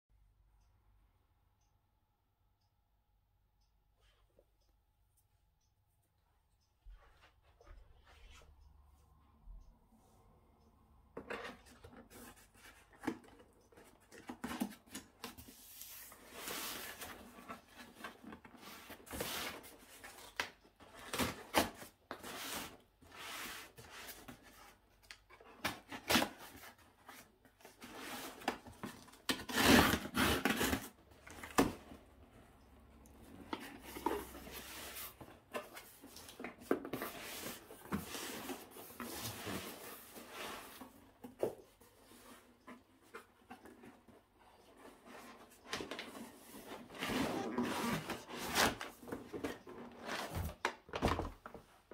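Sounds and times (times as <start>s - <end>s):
packaging rustling and scraping: 11.2s - 32.0s, 33.2s - 51.6s.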